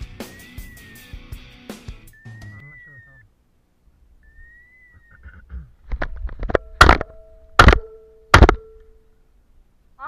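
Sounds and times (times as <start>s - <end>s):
shotgun shots: 7.6s - 7.8s.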